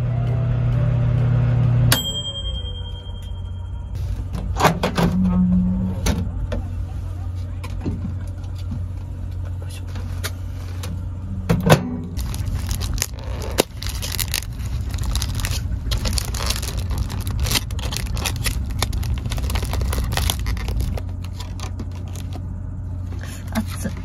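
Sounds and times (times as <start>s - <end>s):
steady low hum: 0.0s - 24.0s
plastic packaging crinkling: 12.2s - 22.4s.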